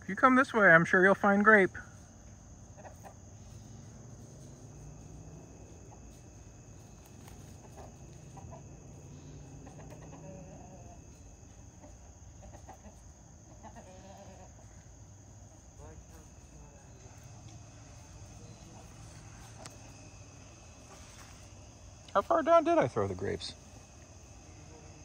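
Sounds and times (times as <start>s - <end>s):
crickets chirring: 0.0s - 25.0s
chickens clucking: 2.0s - 21.8s.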